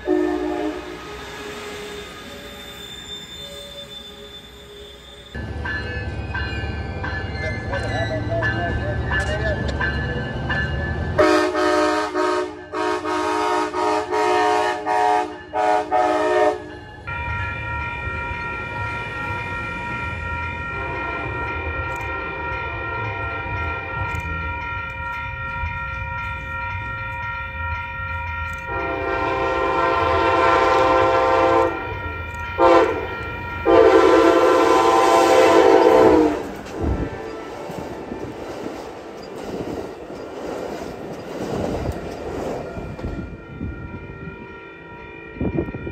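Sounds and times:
train horn blasts: 0.0 - 1.1, 11.2 - 16.7, 20.7 - 21.6, 28.7 - 38.2
train horn long blasts: 0.0 - 1.9, 11.2 - 16.7, 20.7 - 21.6, 28.7 - 32.0, 32.6 - 37.8
crossing warning bell ringing: 0.0 - 45.9.

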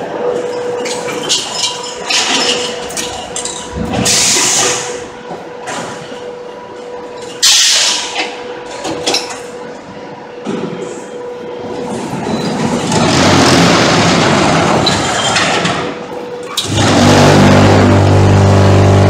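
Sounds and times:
steady machine hum: 0.0 - 11.8, 15.7 - 19.0
machinery clicks and clatter: 0.4 - 6.1, 12.0 - 19.0.

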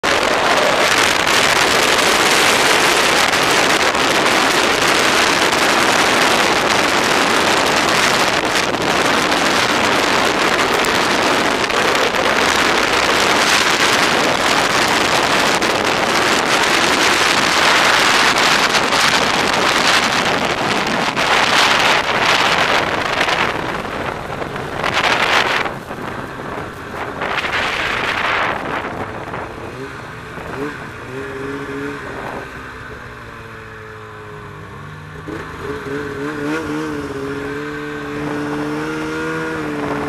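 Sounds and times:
wind buffeting microphone: 0.0 - 32.7
snowmobile engine: 0.0 - 40.0.

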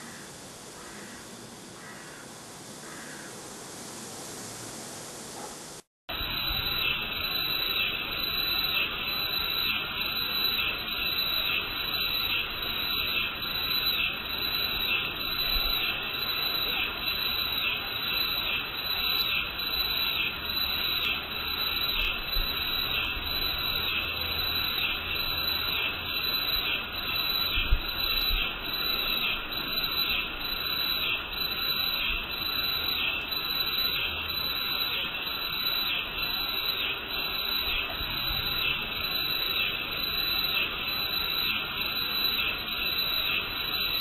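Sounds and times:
steady hiss: 0.0 - 44.0
chorus of pulsing animal calls: 6.3 - 44.0.

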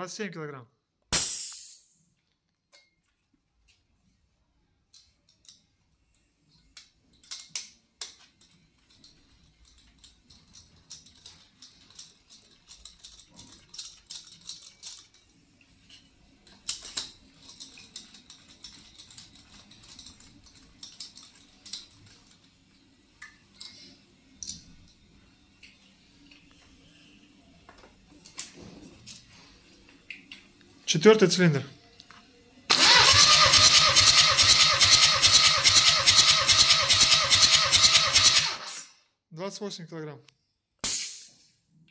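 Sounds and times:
metallic clicks and taps of tools: 2.2 - 3.8, 4.9 - 15.2, 23.2 - 26.7.

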